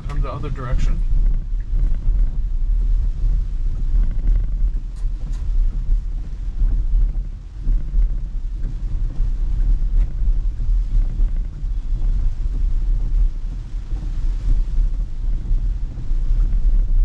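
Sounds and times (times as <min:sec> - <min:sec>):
tyres on wet road: 0:00.0 - 0:01.2
car cabin low rumble: 0:00.0 - 0:17.0
rain on car roof and glass: 0:00.0 - 0:17.0.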